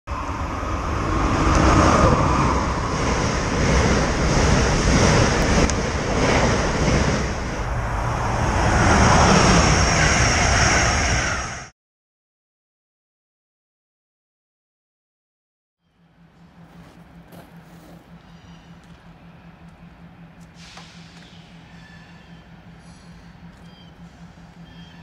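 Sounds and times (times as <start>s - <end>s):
rush of air: 0.1s - 11.7s
train wheels rumbling on rail: 0.1s - 11.7s, 16.0s - 25.0s.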